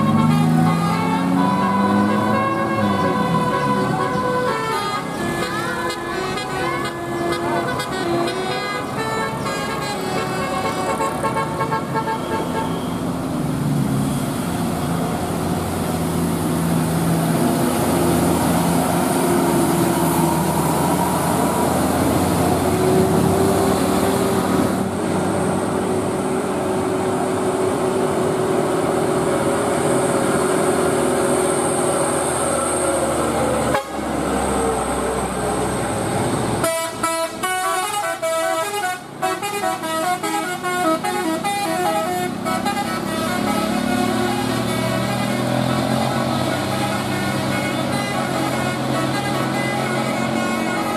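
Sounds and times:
multi-tone bus horn melody: 0.0 - 13.2, 33.4 - 34.5, 36.5 - 50.9
heavy vehicles passing: 0.0 - 50.9.

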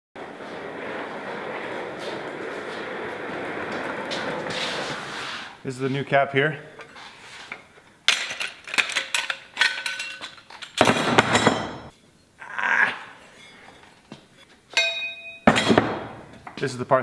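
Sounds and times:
scraping handling noise: 0.2 - 10.8
metal pieces clinking: 8.1 - 11.8.

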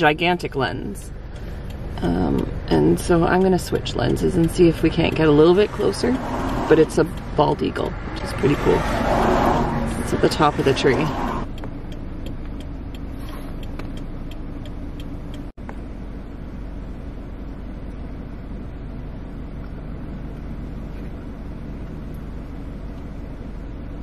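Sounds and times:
light even ticking: 0.0 - 15.8
car engine idling: 0.0 - 24.0.

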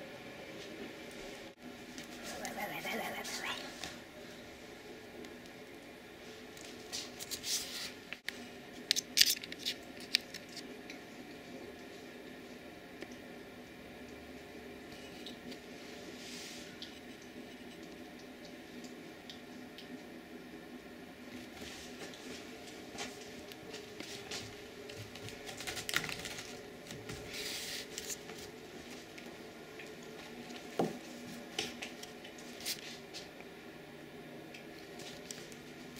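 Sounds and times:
faint room hum: 0.0 - 35.9.

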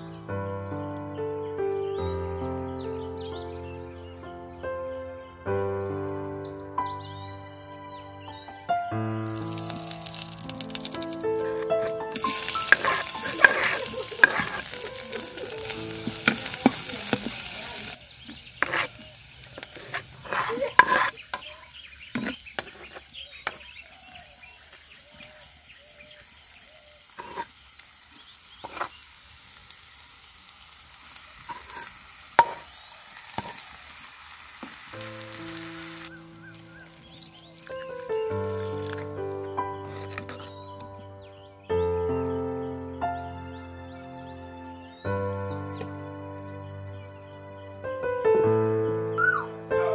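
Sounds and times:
food sizzling in hot oil: 9.2 - 40.5
wooden spoon scraping clay pot: 9.3 - 23.8, 27.2 - 27.6, 28.6 - 29.0, 31.4 - 32.7, 33.3 - 33.7, 39.8 - 40.7.

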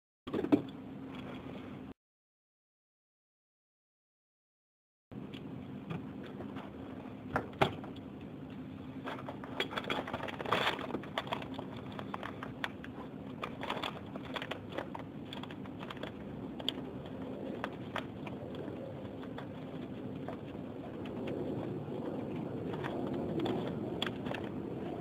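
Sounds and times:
low hum: 5.1 - 25.0.

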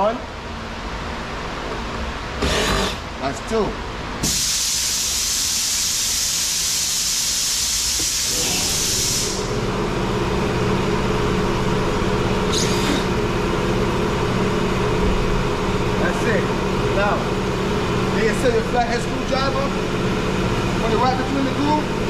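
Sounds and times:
loud hiss of escaping air: 4.2 - 9.6
low machine hum: 8.1 - 22.0.

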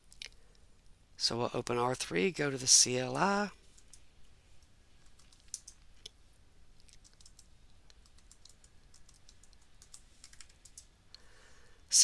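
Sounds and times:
faint keyboard typing: 3.6 - 11.2.

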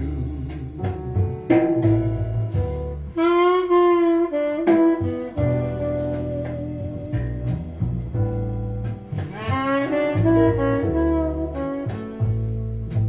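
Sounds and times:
bass: 0.0 - 13.0
drums: 0.0 - 13.0
saxophone holding wavering note: 3.1 - 8.2, 9.3 - 13.0.

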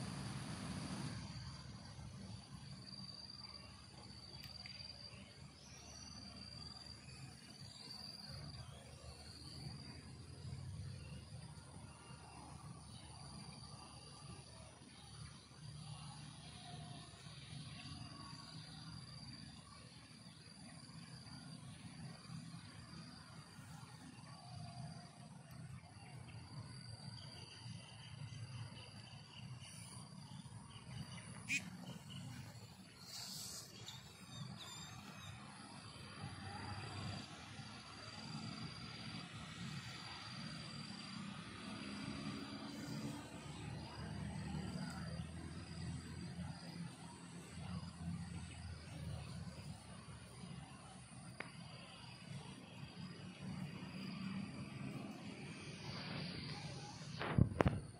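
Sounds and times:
insects trilling: 0.0 - 57.9
high thin insect chirring: 28.8 - 35.5.

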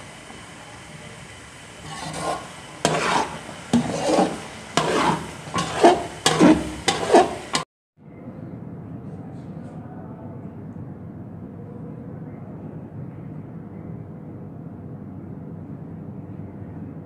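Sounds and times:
metal spoon scraping pan: 1.8 - 7.6.

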